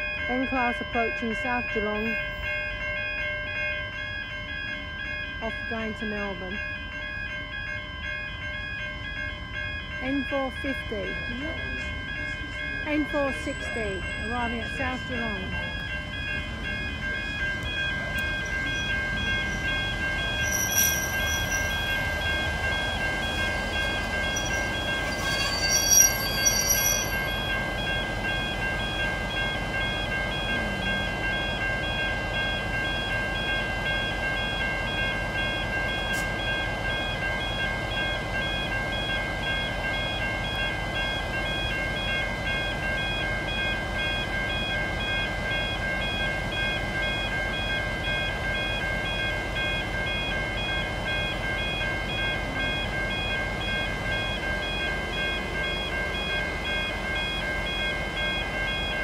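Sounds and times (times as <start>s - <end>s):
pulsing electronic alarm tone: 6.8s - 59.0s
locomotive engine rumbling: 8.0s - 59.0s
high-pitched squeal: 18.2s - 22.1s, 24.2s - 27.5s.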